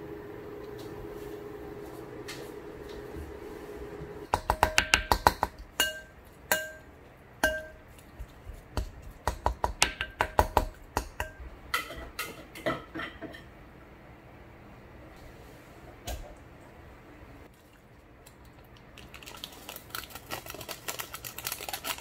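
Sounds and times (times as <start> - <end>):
microwave hum: 0.0 - 7.9
spatula hitting glass bowl: 4.4 - 7.8.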